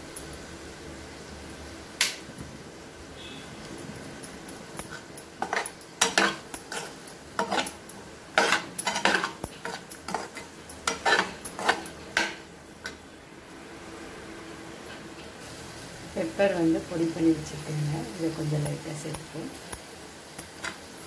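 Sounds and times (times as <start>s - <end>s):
spoon scraping frying pan: 4.8s - 13.0s.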